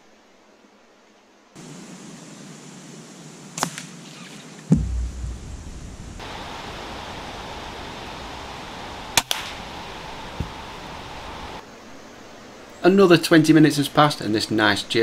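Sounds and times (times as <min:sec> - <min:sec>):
steady hiss: 0:00.0 - 0:15.0
loud thump with low rumble: 0:04.7 - 0:06.2
air rifle firing: 0:09.2 - 0:09.6.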